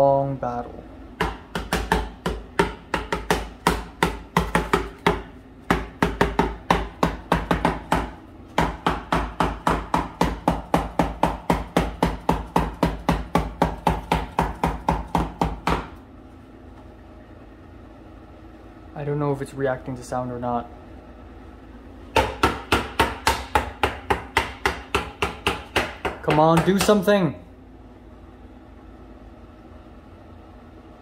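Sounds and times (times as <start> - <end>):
rapid even knocking: 22.2 - 27.0.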